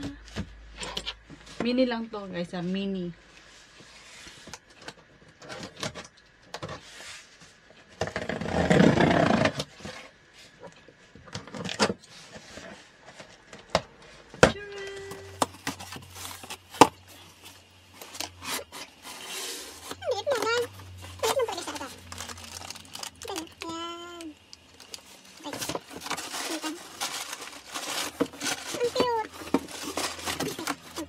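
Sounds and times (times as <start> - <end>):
packing tape ripping: 18.0 - 31.0.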